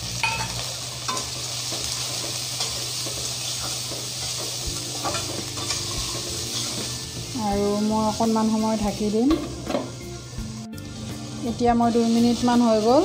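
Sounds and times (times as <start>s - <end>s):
food sizzling in hot oil: 0.0s - 13.0s
spatula clinking and scraping pan: 0.2s - 7.3s.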